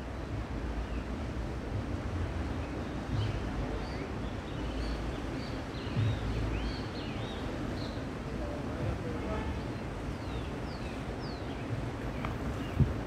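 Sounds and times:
wind rumbling on microphone: 0.0s - 13.0s
small birds chirping: 2.5s - 8.2s, 9.6s - 13.0s.

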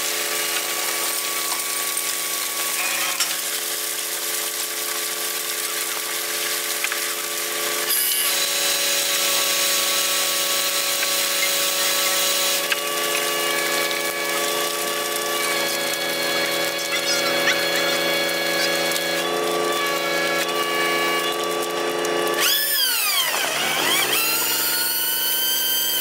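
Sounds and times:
deck machinery whining: 0.0s - 26.0s.

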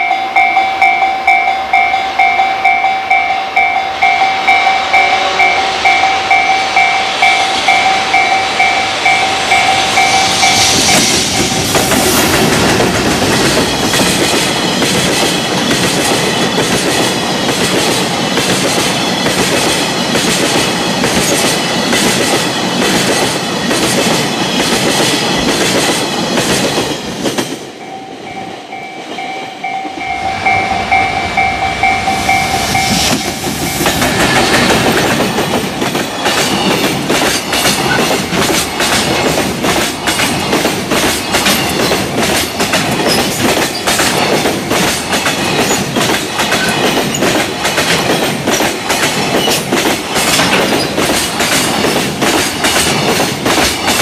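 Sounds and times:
crossing warning bell ringing: 0.0s - 17.4s, 27.6s - 39.1s
train wheels clattering over rail joints: 10.0s - 27.6s, 33.0s - 54.0s.

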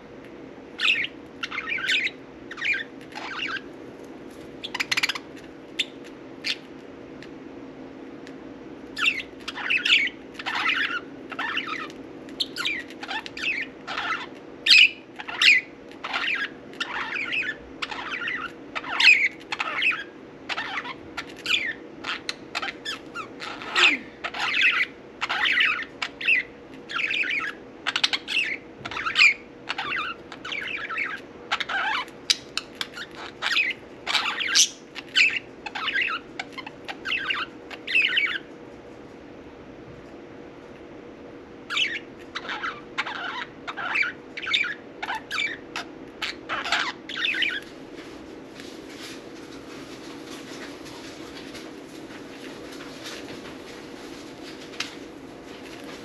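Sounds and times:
steady hum: 0.0s - 56.0s
budgerigars chattering: 0.8s - 3.7s, 4.6s - 6.6s, 9.0s - 38.5s, 41.7s - 47.7s.

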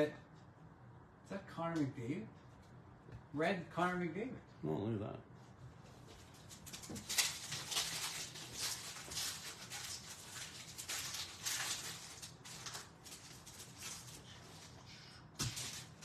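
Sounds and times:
thin plastic crinkling: 6.2s - 16.0s.

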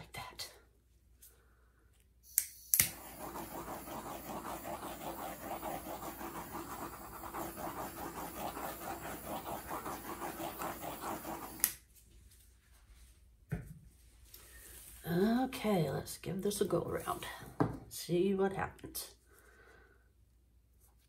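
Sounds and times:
torch igniter clicks: 2.3s - 3.0s
torch flame hissing: 2.6s - 11.7s.

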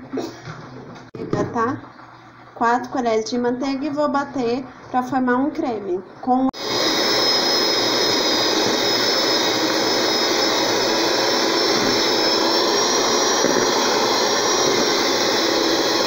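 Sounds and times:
electric mixer motor whine: 6.6s - 16.0s.

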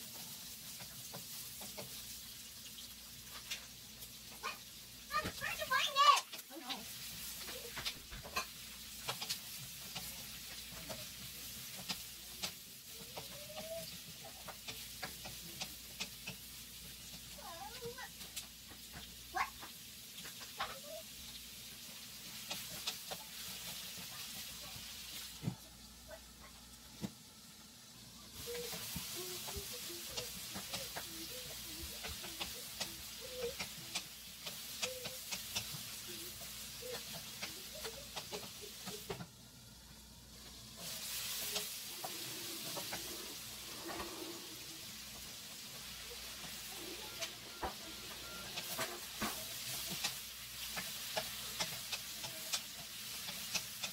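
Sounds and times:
food sizzling in a wok: 0.0s - 53.9s
spatula scraping pan: 28.4s - 39.2s, 40.5s - 53.9s.

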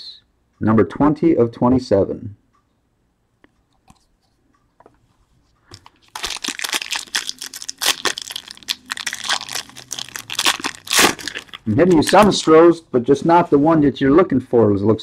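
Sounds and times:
packaging crinkling and tearing: 5.8s - 12.5s.

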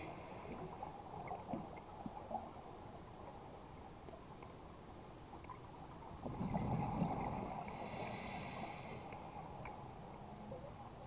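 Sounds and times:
bubbly underwater exhale: 6.3s - 8.8s
underwater hiss: 6.7s - 9.4s.

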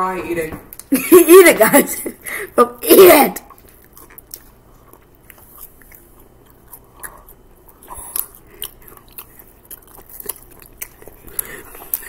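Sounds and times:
chewing fries: 3.4s - 12.0s.

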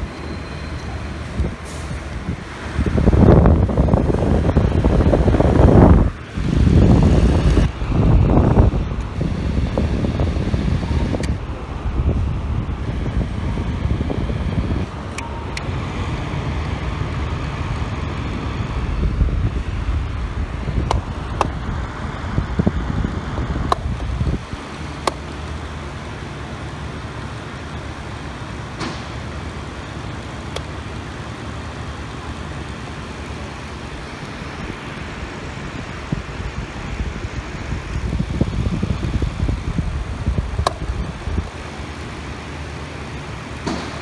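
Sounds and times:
fan air rumbling on microphone: 0.0s - 44.0s
fan control clicks: 8.9s - 11.5s, 14.9s - 15.7s, 20.8s - 22.0s, 22.6s - 25.6s, 30.1s - 31.2s, 37.8s - 42.2s.

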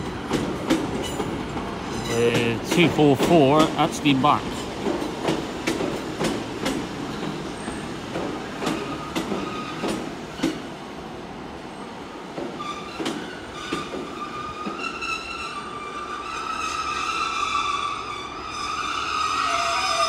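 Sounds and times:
train wheels clicking over rail joints: 0.0s - 10.8s, 12.2s - 15.6s
train brakes squealing: 8.6s - 10.6s, 12.5s - 20.0s.

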